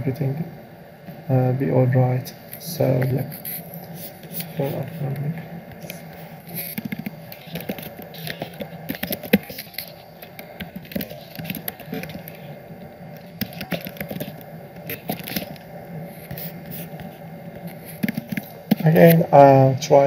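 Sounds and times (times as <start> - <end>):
computer keyboard typing: 5.8 - 12.5, 13.2 - 15.6, 16.2 - 18.9.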